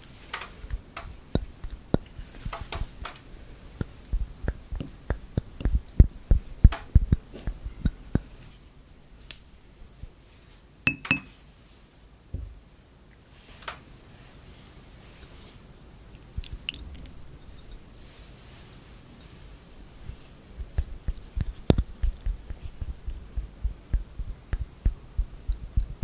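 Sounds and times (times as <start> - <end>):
glass clinking against ceramic: 10.9 - 11.3.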